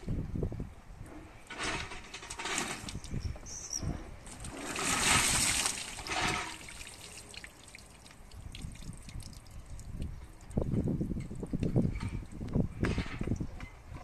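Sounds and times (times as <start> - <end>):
water pouring from bucket: 4.3 - 9.8.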